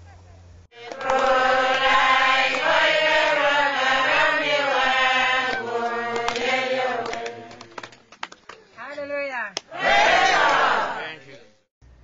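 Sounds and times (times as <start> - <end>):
men singing a chant: 0.8 - 7.9.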